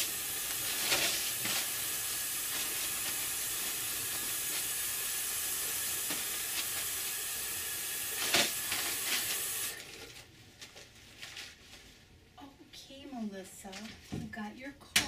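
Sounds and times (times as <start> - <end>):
paper towel rustling: 0.0 - 5.2, 6.0 - 7.0, 8.0 - 12.4
tap water running into sink: 0.0 - 9.7.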